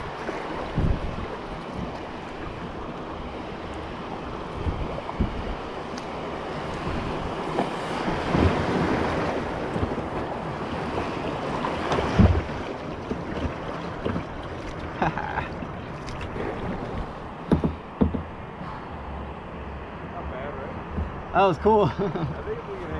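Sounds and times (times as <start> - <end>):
wind buffeting microphone: 0.0 - 14.9
water splashing and lapping: 0.0 - 21.3
kayak paddle strokes: 0.2 - 18.8
low thumps: 20.9 - 21.3.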